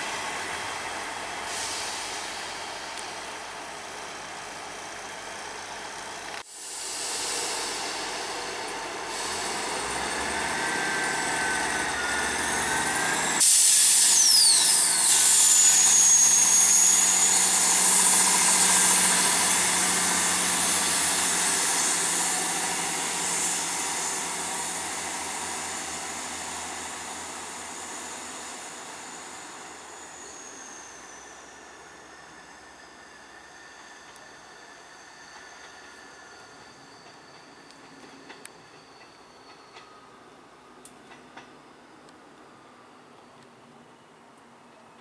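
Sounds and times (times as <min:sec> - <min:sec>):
diesel train engines: 0:00.0 - 0:45.0
wheel flanges squealing: 0:09.2 - 0:40.2.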